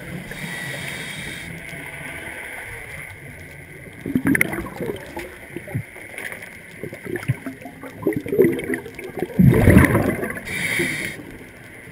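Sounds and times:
underwater bubbles gurgling: 0.0s - 11.9s
rumbling rush of bubbles: 3.8s - 11.9s.

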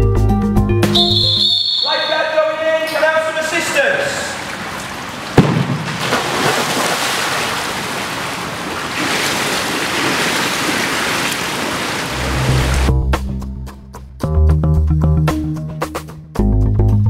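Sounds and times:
music: 0.0s - 1.5s, 12.2s - 17.0s
churning water and bubbles: 3.8s - 12.9s
swimmer diving splash: 3.8s - 12.9s.

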